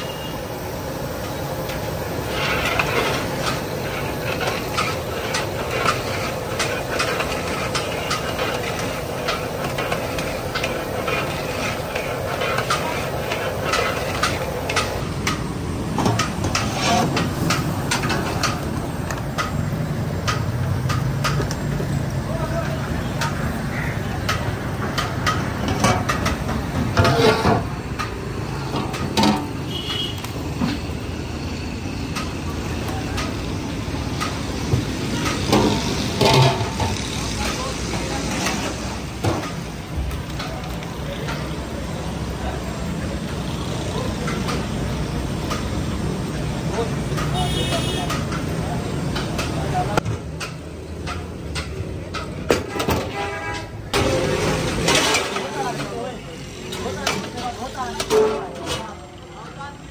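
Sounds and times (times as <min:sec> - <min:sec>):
street rumble: 0:00.0 - 0:59.9
sharp clicks and knocks: 0:12.5 - 0:19.6, 0:20.2 - 0:21.9, 0:24.2 - 0:29.6, 0:49.1 - 0:54.1.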